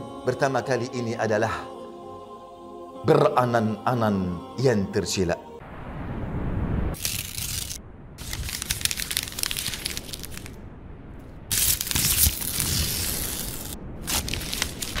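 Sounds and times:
paper crumpling and tearing: 7.0s - 10.6s, 11.5s - 15.0s.

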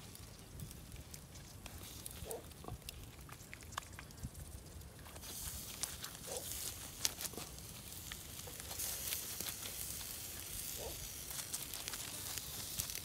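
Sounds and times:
chicken sizzling over charcoal: 0.0s - 13.0s.

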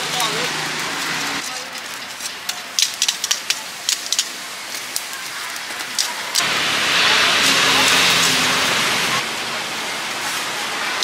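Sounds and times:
steady hiss: 0.0s - 11.0s
coals and tongs clicking: 0.1s - 6.5s.

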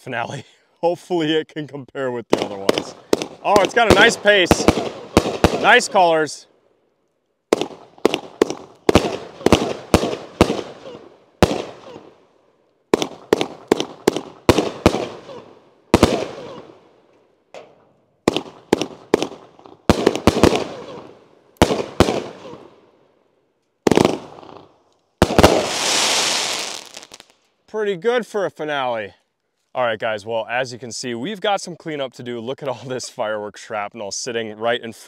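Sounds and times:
firework bangs with echo: 2.3s - 5.9s, 7.5s - 12.1s, 12.9s - 16.8s, 18.2s - 22.7s, 23.9s - 24.6s, 25.2s - 27.0s
firework crackling hiss: 25.2s - 27.4s.

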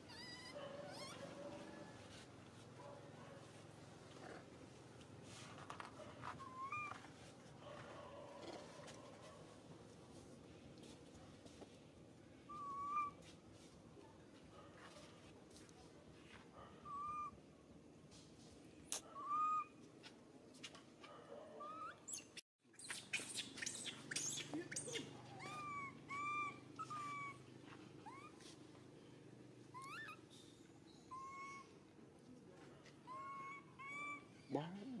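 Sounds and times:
baby monkey whimpering: 0.0s - 1.3s, 6.4s - 7.0s, 12.5s - 13.2s, 16.8s - 17.4s, 18.9s - 19.7s, 21.6s - 22.2s, 23.2s - 27.4s, 28.0s - 28.5s, 29.7s - 30.3s, 31.1s - 31.8s, 33.0s - 35.0s.

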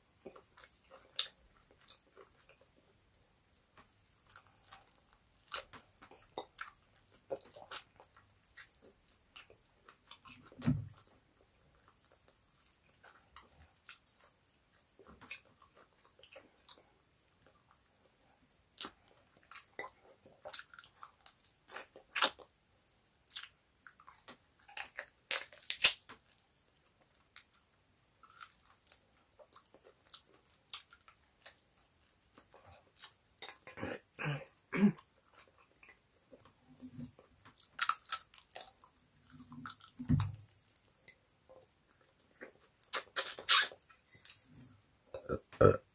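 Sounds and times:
person chewing meat: 37.2s - 40.8s.

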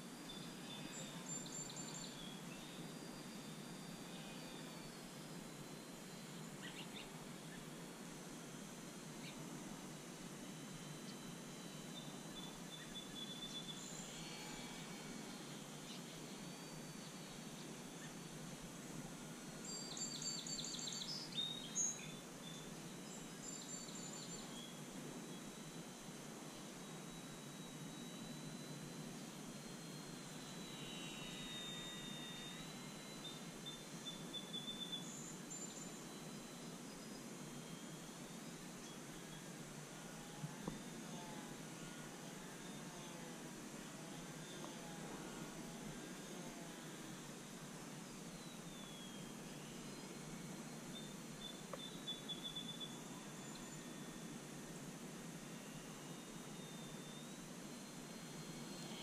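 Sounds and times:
distant model airplane motor whine: 0.0s - 59.0s
outdoor background noise: 0.0s - 59.0s
bird chirps: 48.4s - 50.0s, 50.9s - 54.0s.

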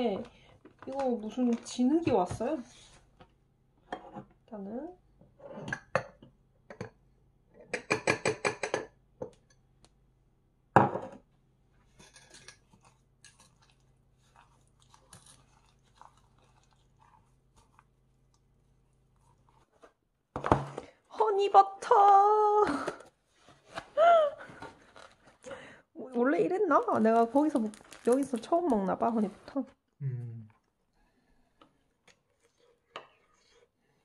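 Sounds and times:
crunchy snack being chewed: 12.8s - 18.5s.

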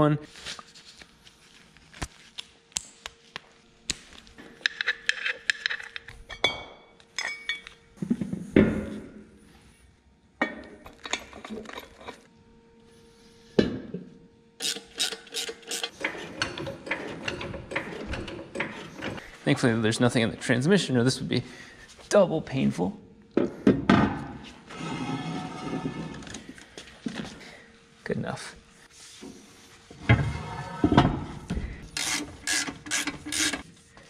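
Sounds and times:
metal tools clinking: 4.6s - 7.8s.

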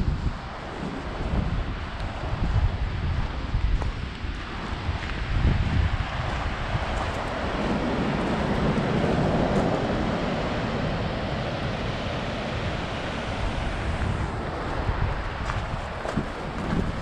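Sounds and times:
wind buffeting microphone: 0.0s - 17.0s
whitewater rapids rushing: 6.1s - 16.7s.

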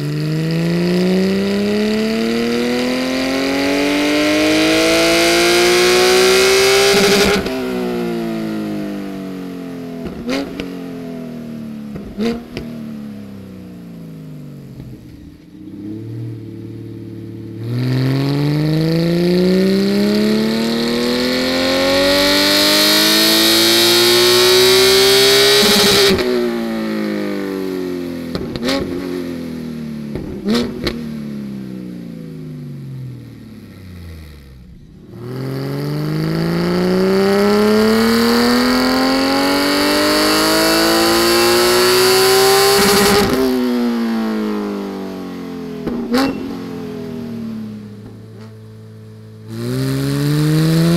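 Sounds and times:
engine revving on dyno: 0.4s - 7.7s, 17.6s - 26.3s, 35.2s - 43.6s, 49.5s - 50.9s.

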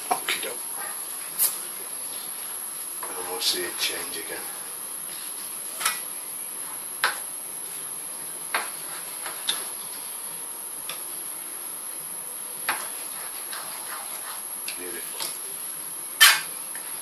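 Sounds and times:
steady hiss: 0.0s - 17.0s
spatula stirring sauce in pan: 8.5s - 10.1s, 12.6s - 15.2s.

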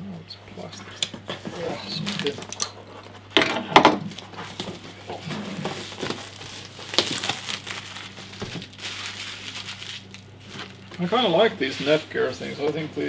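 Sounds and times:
plastic bag crinkling: 1.6s - 2.7s, 4.1s - 13.0s
cardboard rustling: 4.0s - 13.0s.

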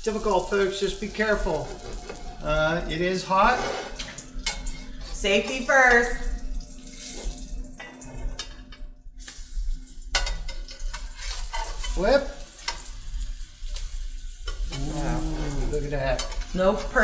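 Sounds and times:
metal spatula scraping a pan: 3.1s - 5.7s, 10.1s - 13.4s, 14.4s - 17.0s
pancakes sizzling in a frying pan: 9.2s - 17.0s.

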